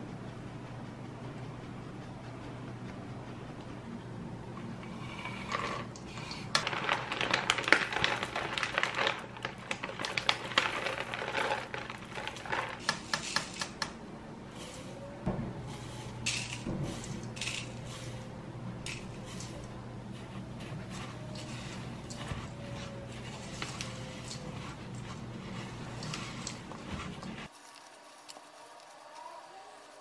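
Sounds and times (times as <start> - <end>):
chocolate chips rattling into bowl: 5.6 - 13.4.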